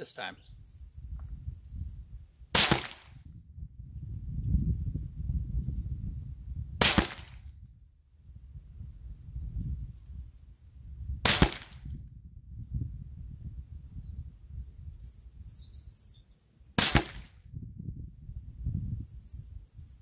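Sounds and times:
rifle shots: 0:02.6 - 0:03.2, 0:06.8 - 0:07.4, 0:11.2 - 0:11.8, 0:16.8 - 0:17.3.

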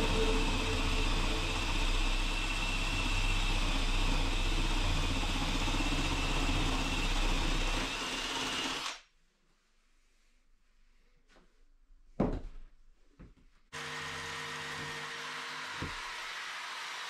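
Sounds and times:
cordless drill boring into wood: 0:00.6 - 0:09.0, 0:13.8 - 0:17.0.

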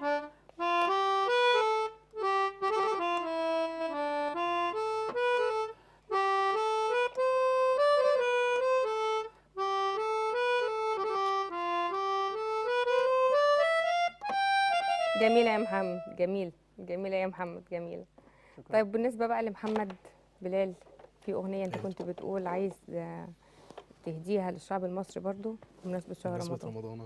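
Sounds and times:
melodica melody: 0:00.0 - 0:16.3.

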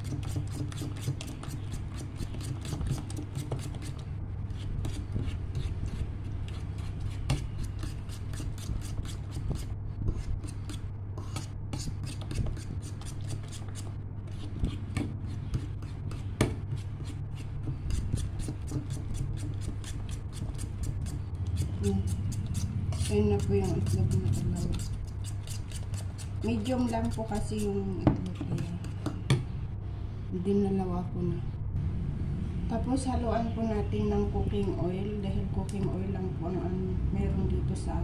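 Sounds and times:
utensil scraping ceramic bowl: 0:00.0 - 0:29.1
steady low hum: 0:00.0 - 0:38.0.

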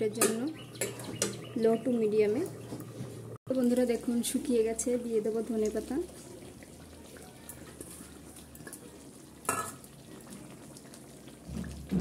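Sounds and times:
light sizzle: 0:00.0 - 0:12.0
metal clinking on pan: 0:09.5 - 0:09.8.

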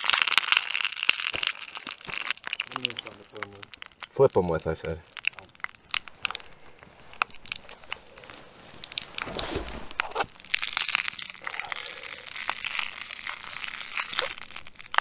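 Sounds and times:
pot clicks and scrapes: 0:05.1 - 0:11.8
food hissing in oil: 0:08.2 - 0:14.1.

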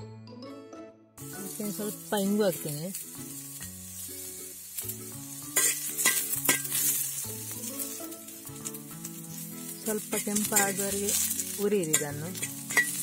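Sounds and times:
onion and garlic sizzling in oil: 0:01.2 - 0:13.0
metal spoon scraping a pan: 0:02.6 - 0:13.0.

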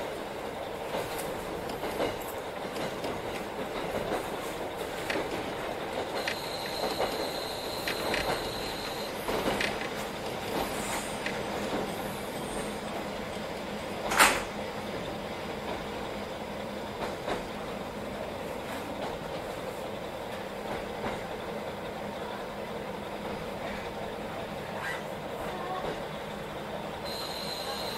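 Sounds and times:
railcar rumble: 0:00.0 - 0:27.9
high squeal of wheels or brakes: 0:06.2 - 0:09.2, 0:27.1 - 0:27.9.

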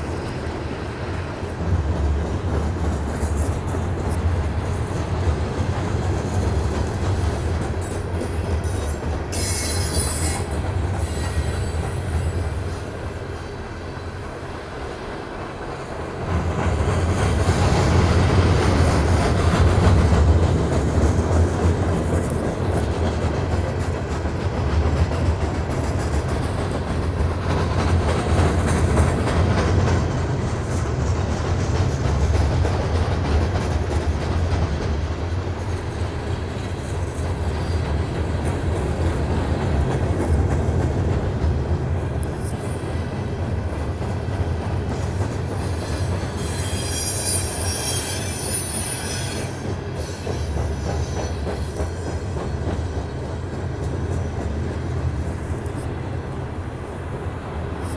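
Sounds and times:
train wheels rumbling on rail: 0:00.0 - 0:57.9
high wheel squeal: 0:07.2 - 0:12.8, 0:45.6 - 0:52.3.

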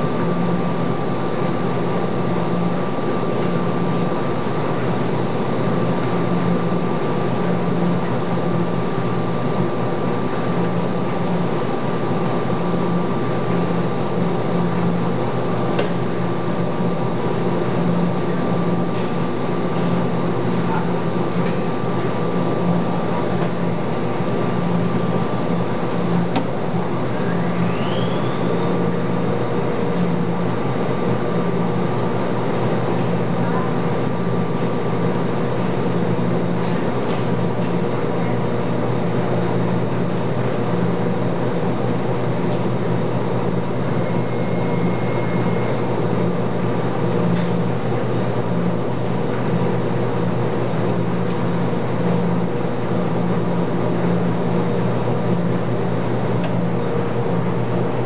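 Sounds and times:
washing machine running: 0:00.0 - 0:58.0
brief rising whine: 0:27.1 - 0:28.8.

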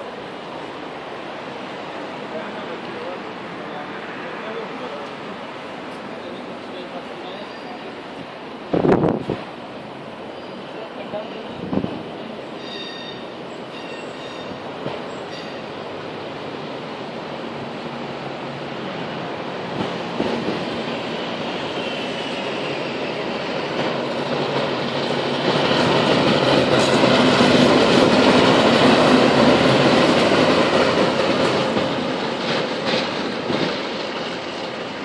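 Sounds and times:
diesel locomotive engine: 0:00.0 - 0:35.0
wheels clacking over rail joints: 0:23.4 - 0:35.0.

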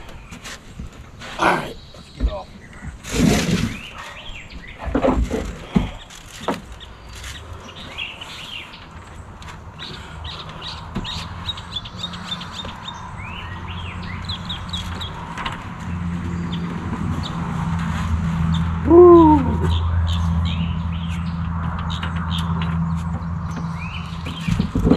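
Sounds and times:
birds chirping: 0:00.0 - 0:24.9
knocks and thumps on roof: 0:24.2 - 0:24.9.

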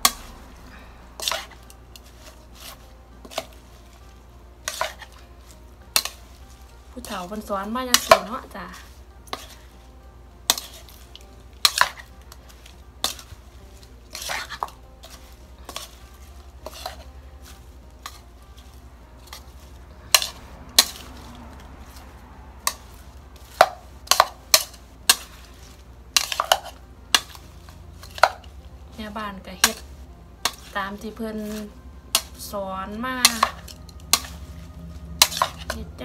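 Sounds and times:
metal spoon clinking against bowl: 0:35.2 - 0:35.9.

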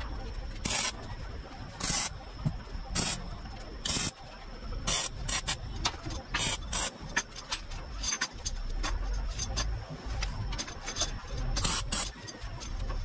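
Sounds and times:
arc welding crackle: 0:00.0 - 0:07.0
welder low hum: 0:00.0 - 0:07.0.

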